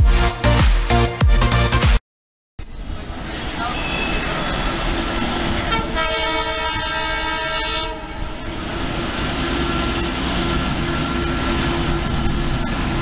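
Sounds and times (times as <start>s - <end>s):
locomotive air horn blast: 3.7s - 8.4s.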